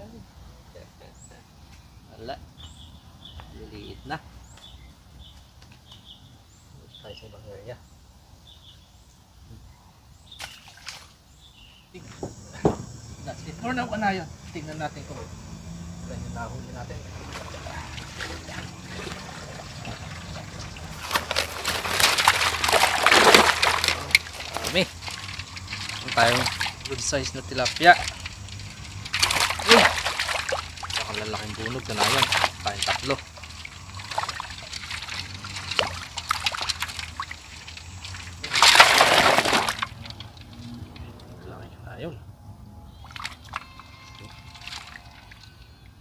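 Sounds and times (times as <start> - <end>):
fish and water splashing into basin: 10.3 - 11.2, 16.8 - 41.4, 43.0 - 45.9
water trickling: 12.4 - 41.6, 42.9 - 46.0.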